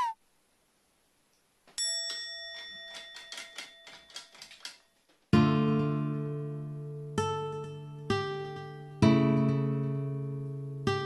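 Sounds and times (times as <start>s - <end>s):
typewriter-like clicks: 2.6s - 4.9s
acoustic guitar chord strummed: 5.3s - 11.0s.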